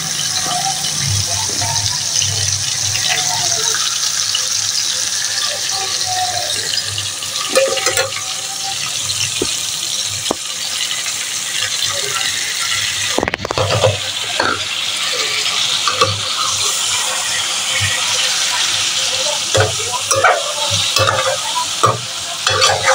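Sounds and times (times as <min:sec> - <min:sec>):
chicken sizzling in a pan: 0:00.0 - 0:22.9
metal spoon scraping a pan: 0:07.4 - 0:08.3, 0:12.2 - 0:22.9.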